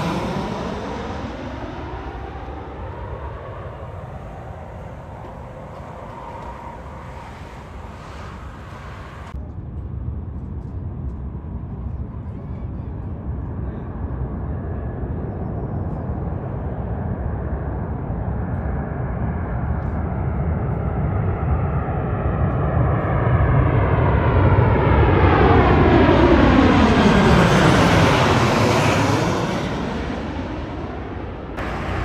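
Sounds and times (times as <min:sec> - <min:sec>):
jet whoosh falling in pitch: 0:00.0 - 0:09.4
jet airliner passing overhead: 0:00.0 - 0:32.0.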